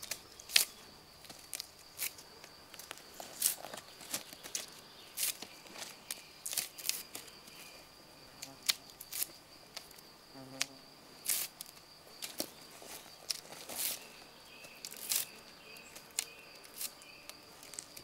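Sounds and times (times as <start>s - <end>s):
high insect trill: 0.0s - 18.0s
knife scraping wooden stick: 12.9s - 14.2s.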